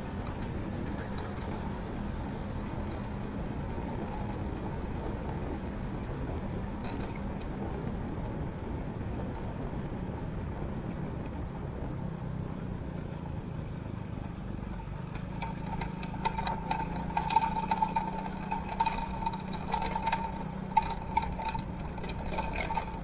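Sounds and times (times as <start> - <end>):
motorcycle engine hum: 0.0 - 23.0
tyres whirring on brick paving: 0.0 - 23.0
tyres hissing on wet road: 0.4 - 3.4.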